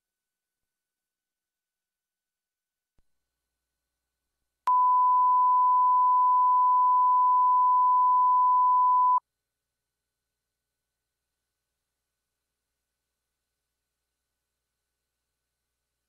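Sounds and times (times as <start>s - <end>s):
steady beep tone: 4.7s - 9.2s.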